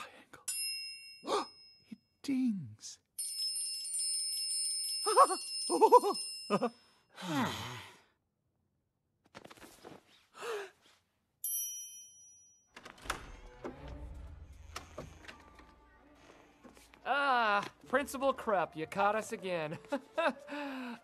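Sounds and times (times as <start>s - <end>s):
long falling sigh: 7.1s - 8.1s.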